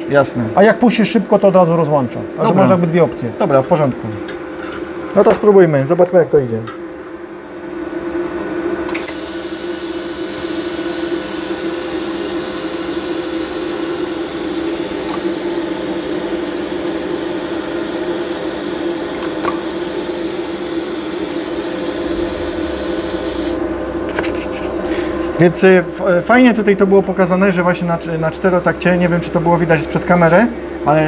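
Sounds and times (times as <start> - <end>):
welding arc hissing: 9.0 - 23.6.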